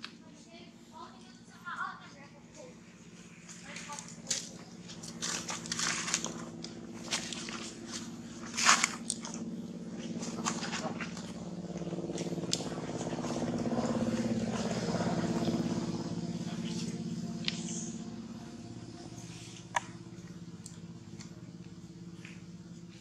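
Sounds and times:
motor hum: 0:00.0 - 0:23.0
dry leaves crackling and rustling: 0:03.2 - 0:14.4.

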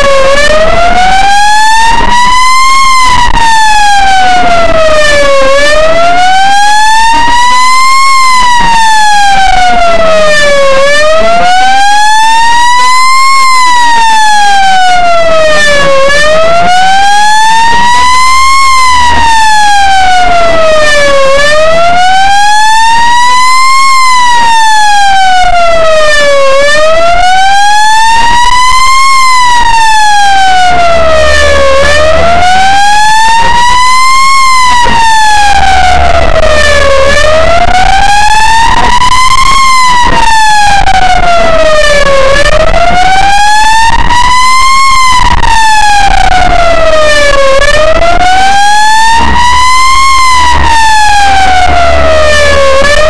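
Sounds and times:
ambulance siren wailing: 0:00.0 - 0:53.0
moving vehicle rumble: 0:28.0 - 0:53.0.

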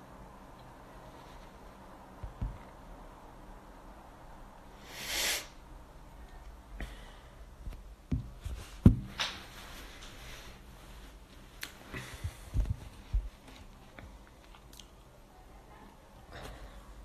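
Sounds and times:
noisy breath into microphone: 0:04.7 - 0:05.6.

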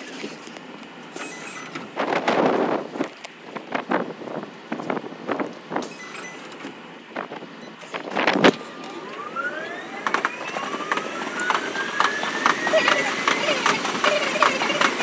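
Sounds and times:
train motors whining: 0:00.0 - 0:15.0
train running noise: 0:00.0 - 0:15.0
wheels clicking on rails: 0:00.0 - 0:15.0
loud clatter: 0:10.0 - 0:15.0.

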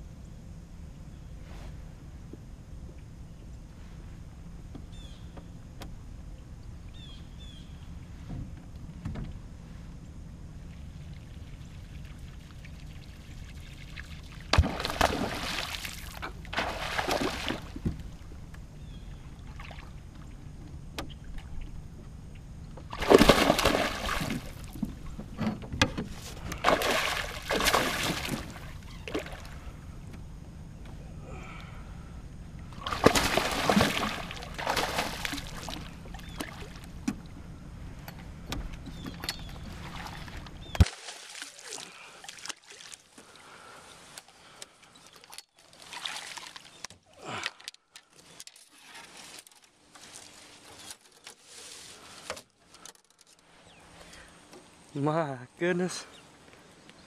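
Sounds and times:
fish splashing at water surface: 0:13.9 - 0:17.8, 0:22.9 - 0:24.8, 0:26.4 - 0:29.6, 0:32.8 - 0:36.8, 0:39.7 - 0:43.2, 0:45.7 - 0:47.7.

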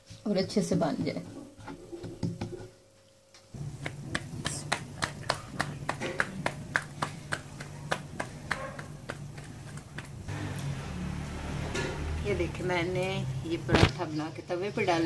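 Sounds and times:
dough slapped between palms: 0:03.6 - 0:10.3
steady low hum: 0:03.6 - 0:13.9.

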